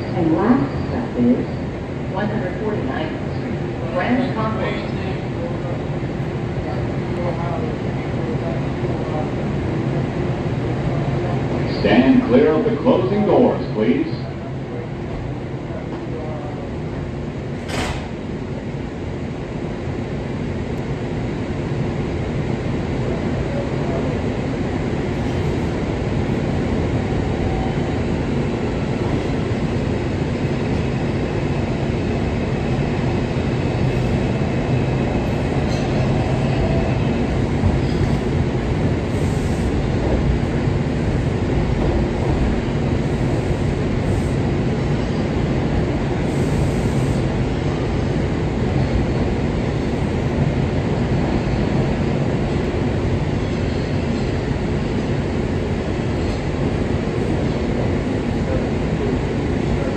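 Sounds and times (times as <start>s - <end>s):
subway train wheels rumbling: 0.0s - 59.9s.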